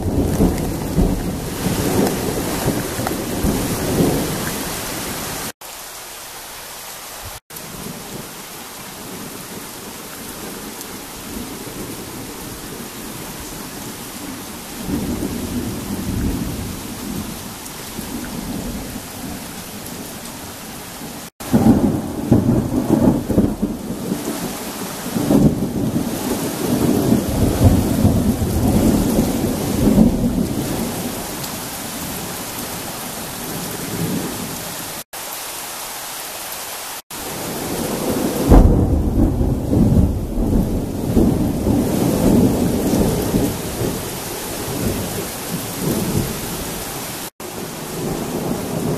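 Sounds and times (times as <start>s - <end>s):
thunder rumbling: 0.0s - 5.2s, 21.3s - 31.4s, 37.2s - 48.9s
heavy rain falling: 0.0s - 48.9s.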